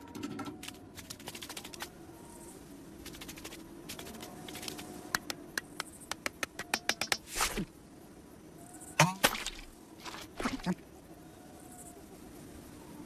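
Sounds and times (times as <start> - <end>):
faint steady hum: 0.0 - 13.0
cartoon clicks and taps: 5.1 - 7.3.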